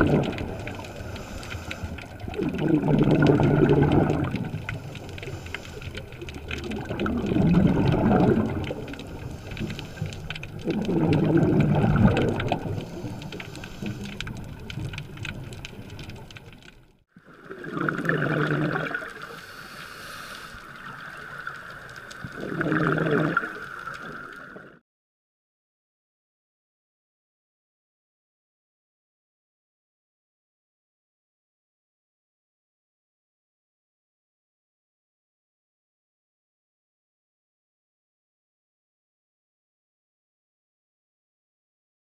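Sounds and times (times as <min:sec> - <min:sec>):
underwater exhaled bubbles: 0:00.0 - 0:24.8.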